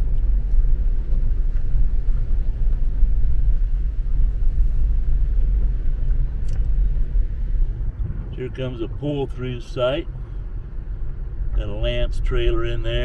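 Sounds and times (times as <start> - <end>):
car rolling on gravel road: 0.0 - 13.0.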